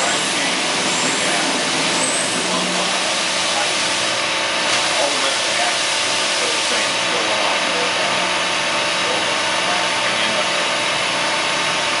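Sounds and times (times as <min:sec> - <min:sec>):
milling machine whirring hiss: 0:00.0 - 0:12.0.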